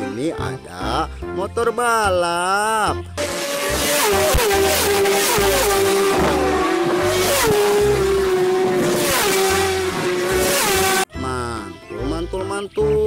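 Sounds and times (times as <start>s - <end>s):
racing motorcycles passing: 3.2s - 11.1s.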